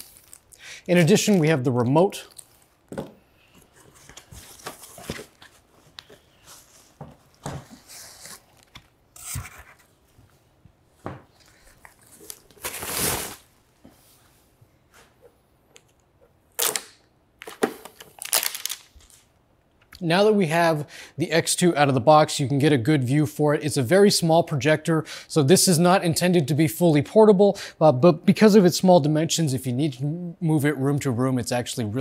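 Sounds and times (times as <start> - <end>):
tape crackling as peeled off: 0.0 - 0.6, 11.4 - 13.5, 16.5 - 19.4
packaging rustling and scraping: 3.5 - 10.0, 11.3 - 13.5, 17.4 - 19.3.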